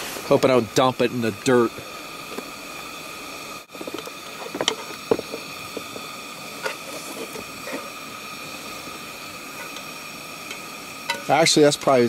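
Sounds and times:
faint steady hum: 0.0s - 12.0s
pot and lid clinking: 3.8s - 8.0s, 9.5s - 11.4s.

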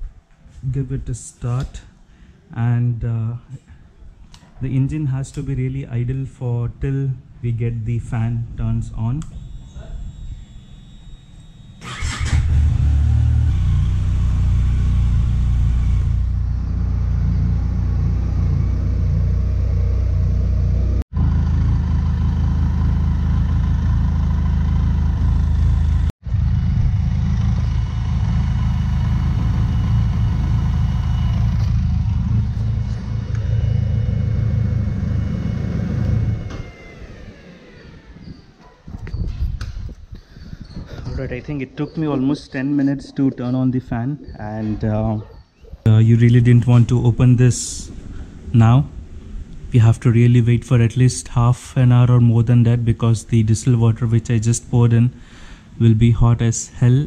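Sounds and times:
motorcycle engine starting and idling: 9.2s - 38.6s.

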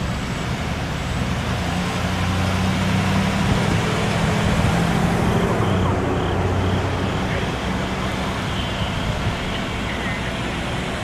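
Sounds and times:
vehicle engine idling: 3.2s - 11.0s.

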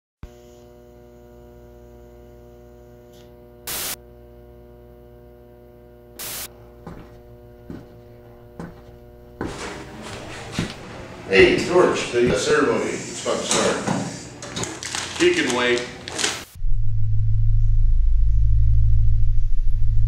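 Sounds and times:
electrical hum with even tones: 0.3s - 20.0s
loud bursts of hiss: 3.7s - 4.0s, 6.2s - 6.5s.

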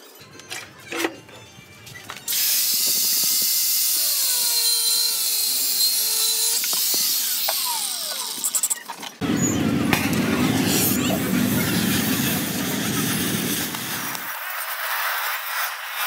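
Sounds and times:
angle grinder cutting metal: 2.3s - 8.8s.

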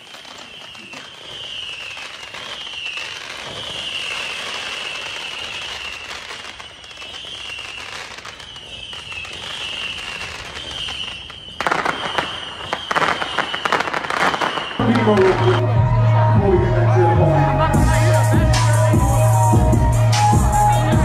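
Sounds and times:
firecracker bangs: 0.0s - 15.8s
fireworks crackling: 0.0s - 21.0s.

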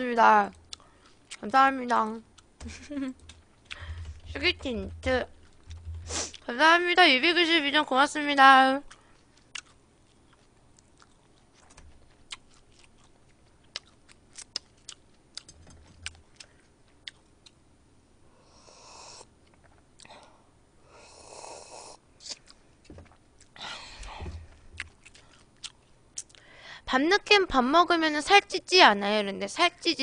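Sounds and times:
chewing clicks: 8.9s - 17.6s.

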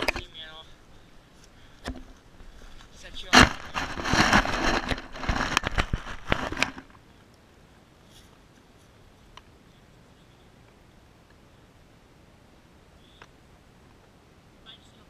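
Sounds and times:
camera handling rustling and scraping: 0.0s - 0.3s, 1.4s - 7.0s
faint outdoor background: 0.0s - 15.0s.

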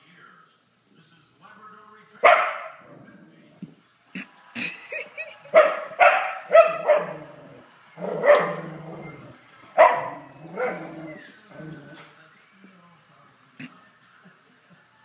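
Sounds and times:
dog barking excitedly: 2.2s - 2.9s, 5.5s - 7.4s, 8.0s - 8.8s, 9.8s - 11.0s.

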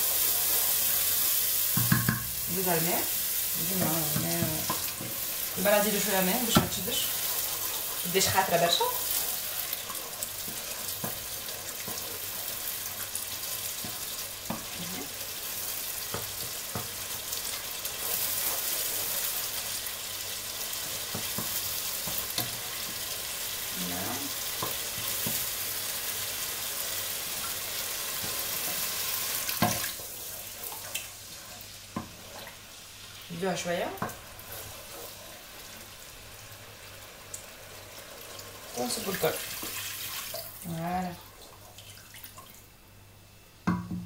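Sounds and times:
sauce sizzling in a pot: 0.0s - 43.6s
spoon knocking against pot: 1.8s - 2.3s
wooden spoon stirring: 3.6s - 15.0s, 34.0s - 35.5s.

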